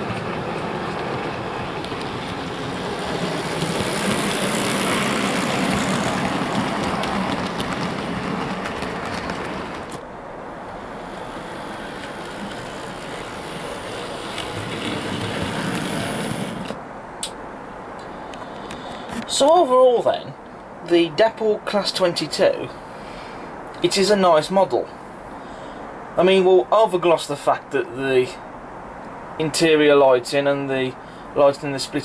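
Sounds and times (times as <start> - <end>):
wheels rolling on rails: 0.0 - 16.8
model train motor hum: 10.8 - 16.8.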